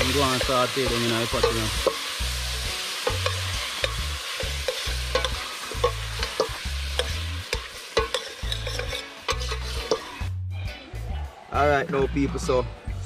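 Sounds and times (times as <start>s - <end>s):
food sizzling: 0.0s - 10.4s
metal spoon clinking on pot: 1.3s - 2.0s, 3.0s - 10.1s.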